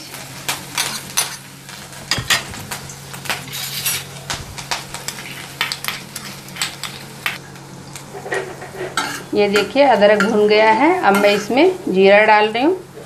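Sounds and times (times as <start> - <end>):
food sizzling in hot oil: 0.0 - 13.0
metal spoon scraping a pan: 0.7 - 1.5, 3.5 - 4.2, 5.0 - 7.4, 8.1 - 11.7.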